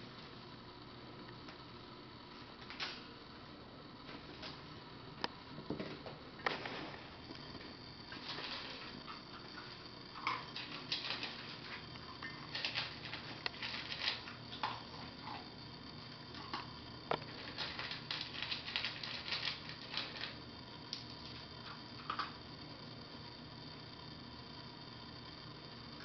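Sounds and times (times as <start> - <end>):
puppy crunching dry kibble: 6.4 - 15.5, 16.3 - 20.4.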